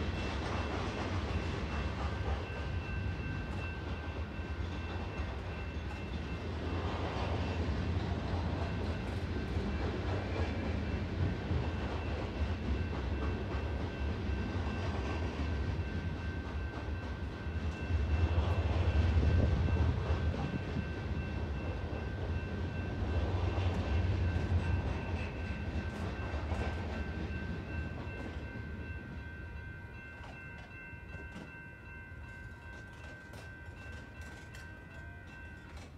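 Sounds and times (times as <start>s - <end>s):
crossing warning bell ringing: 0.0s - 35.9s
freight train rumbling: 0.0s - 35.9s.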